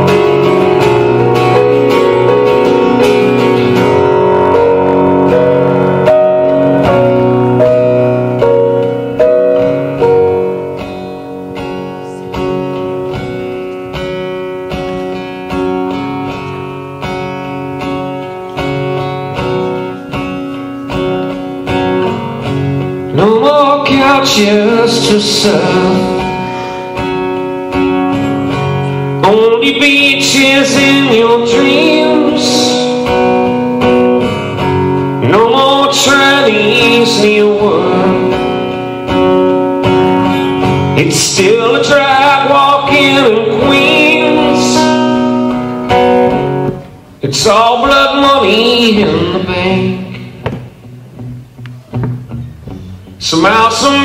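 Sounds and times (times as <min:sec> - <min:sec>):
acoustic guitar strumming chords: 0:00.0 - 0:54.0
man singing into microphone: 0:23.0 - 0:26.7, 0:29.1 - 0:33.4, 0:35.2 - 0:38.8, 0:40.8 - 0:45.7, 0:47.2 - 0:50.7, 0:53.2 - 0:54.0.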